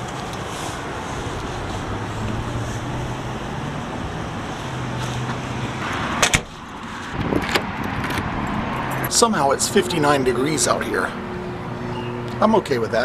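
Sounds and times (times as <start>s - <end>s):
street traffic hum: 0.0s - 13.0s
door pulled shut: 6.2s - 6.6s.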